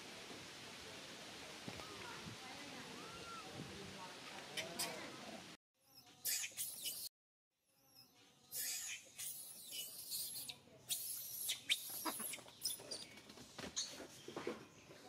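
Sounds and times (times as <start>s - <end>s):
monkey squealing and screeching: 6.2s - 7.1s, 8.5s - 13.0s.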